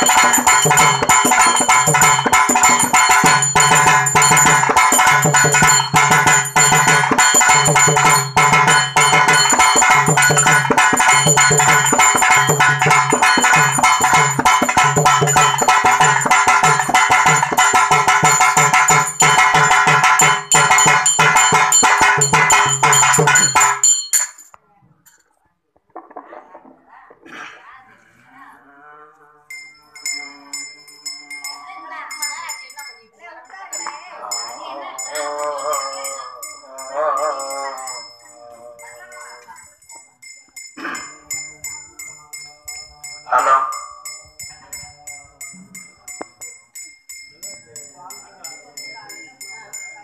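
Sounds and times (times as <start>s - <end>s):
hand drums beating fast rhythm: 0.0s - 24.4s.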